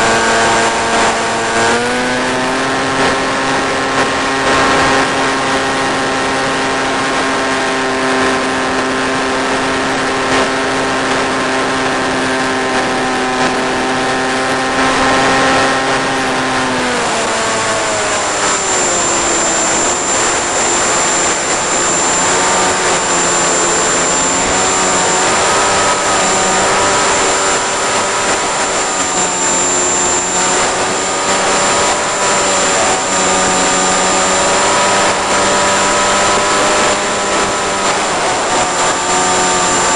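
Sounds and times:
electric motor propeller whine: 0.0s - 39.9s
radio transmission hiss: 17.8s - 34.5s.

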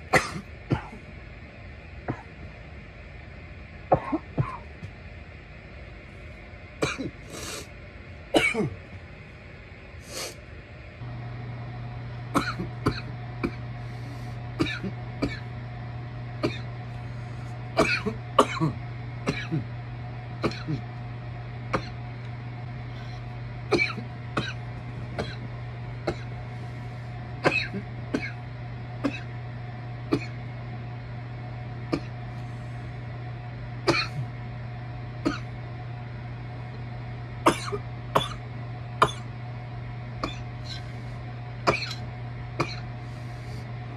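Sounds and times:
steady low hum: 0.0s - 43.9s
person coughing: 0.1s - 1.0s, 2.1s - 2.3s, 4.0s - 4.7s, 6.8s - 7.5s, 8.4s - 8.8s, 12.3s - 13.7s, 14.6s - 15.5s, 16.4s - 16.7s, 17.8s - 19.7s, 20.4s - 20.9s, 21.7s - 22.0s, 23.0s - 24.6s, 25.2s - 26.4s, 27.4s - 28.4s, 29.0s - 29.3s, 30.1s - 30.4s, 31.9s - 32.2s, 33.9s - 34.3s, 35.2s - 35.5s, 37.5s - 38.4s, 39.0s - 39.3s, 40.2s - 40.9s, 41.7s - 42.9s
throat clearing: 0.2s - 1.0s, 2.1s - 2.3s, 3.9s - 4.8s, 8.4s - 8.8s, 12.4s - 13.7s, 14.6s - 15.5s, 16.4s - 16.7s, 17.8s - 19.7s, 20.4s - 20.9s, 21.7s - 22.0s, 23.8s - 24.6s, 25.2s - 26.3s, 27.4s - 28.4s, 29.1s - 29.3s, 31.9s - 32.2s, 33.9s - 34.3s, 40.2s - 40.9s, 41.7s - 42.9s.

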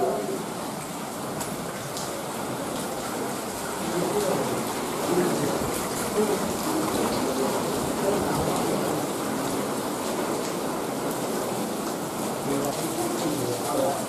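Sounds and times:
water rushing over rocks: 0.0s - 14.0s
faint voices talking: 3.8s - 9.8s.

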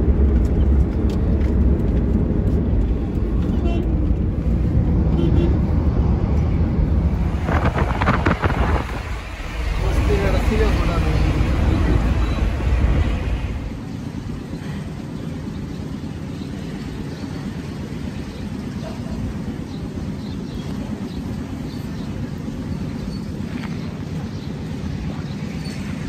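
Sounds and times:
car cabin road rumble: 0.0s - 15.1s
low outdoor background rumble: 0.0s - 26.0s.

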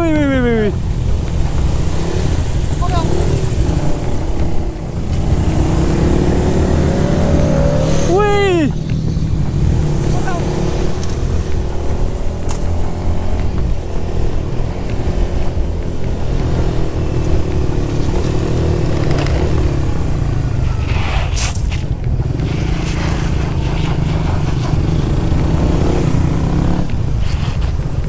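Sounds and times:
heavy low rumble: 0.0s - 18.9s
motorcycle engines revving: 0.0s - 28.0s
rush of noise: 0.0s - 28.0s.

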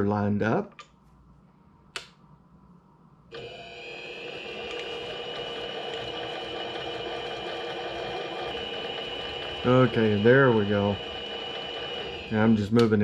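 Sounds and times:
switch click: 1.9s - 2.2s
lathe motor and gear whine: 3.3s - 13.0s.

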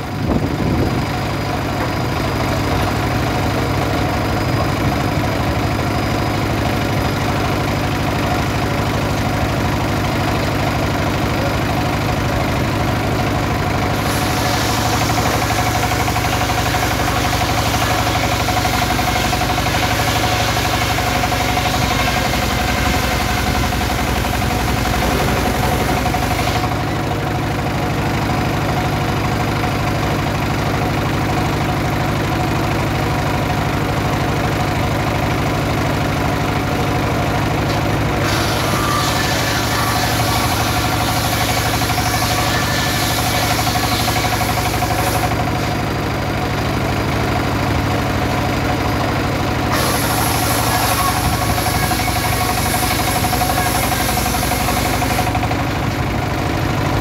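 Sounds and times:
diesel engine running: 0.0s - 57.0s
saw blade cutting log: 13.8s - 27.5s, 37.7s - 45.8s, 49.6s - 55.6s.

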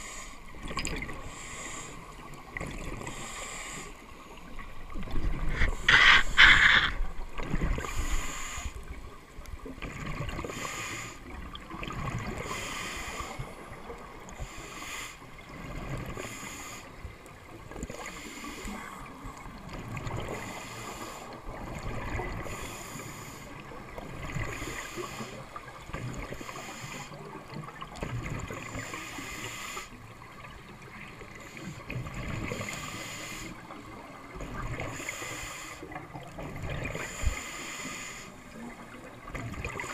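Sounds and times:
regulator breathing hiss: 1.2s - 2.2s, 3.1s - 4.1s, 7.9s - 8.9s, 10.5s - 11.3s, 12.4s - 13.5s, 14.4s - 15.2s, 20.4s - 21.4s, 24.5s - 25.5s, 26.3s - 27.2s, 28.7s - 30.0s, 32.7s - 33.6s, 34.9s - 35.9s, 37.0s - 38.4s.

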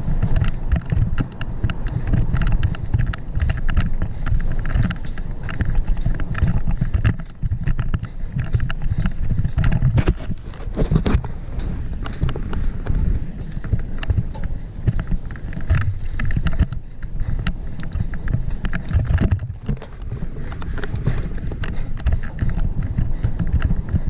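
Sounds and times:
mountain bike rattling over bumps: 0.0s - 24.0s
wind rumble on microphone: 0.0s - 24.0s.

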